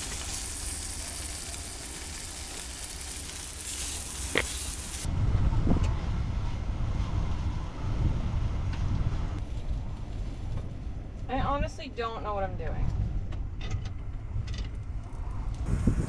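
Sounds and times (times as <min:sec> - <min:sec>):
meat sizzling in a frying pan: 0:00.0 - 0:05.1
wind rumble on microphone: 0:05.0 - 0:16.0.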